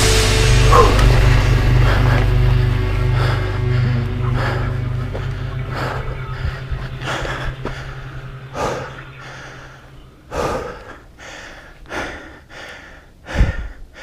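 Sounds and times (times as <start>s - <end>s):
person breathing hard: 0.0s - 14.0s.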